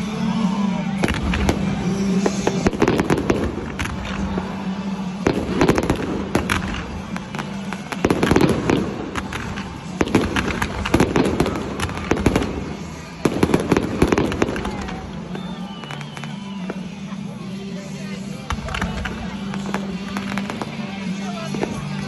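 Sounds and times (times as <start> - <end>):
firework crackles: 0.0 - 22.0.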